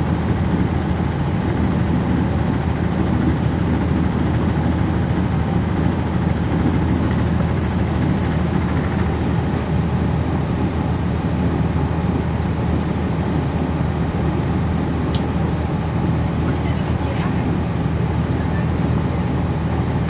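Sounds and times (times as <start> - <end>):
bus diesel engine droning: 0.0 - 20.0.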